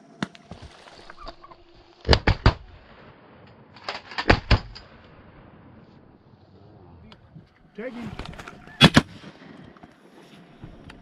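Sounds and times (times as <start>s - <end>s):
shotgun blasts: 2.0s - 5.4s, 8.8s - 9.4s.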